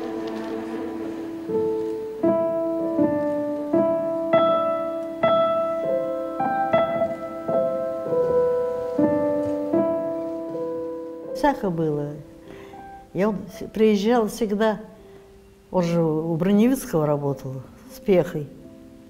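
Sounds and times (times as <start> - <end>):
slow piano melody: 0.0 - 19.0.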